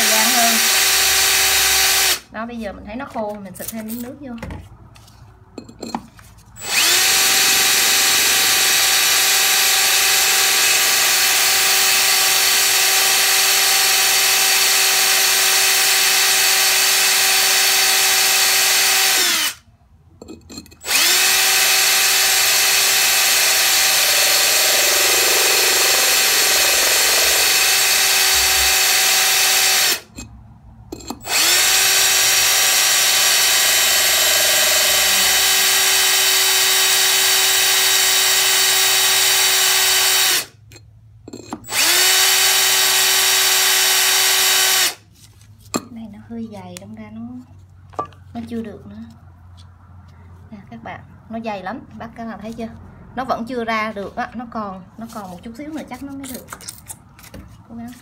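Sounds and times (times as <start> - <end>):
power drill cutting ceramic: 0.0 - 2.2, 6.6 - 19.6, 20.8 - 30.2, 31.2 - 40.6, 41.6 - 45.0.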